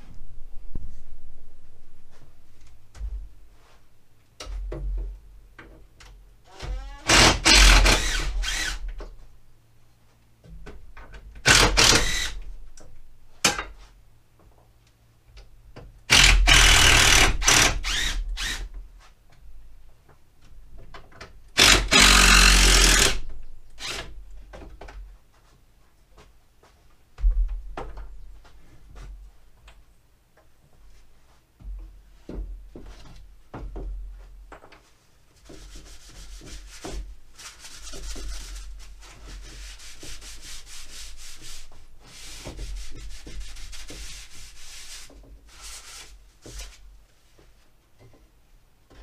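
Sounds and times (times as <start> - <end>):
cordless drill running: 7.1 - 8.8, 16.1 - 18.5, 21.6 - 23.2.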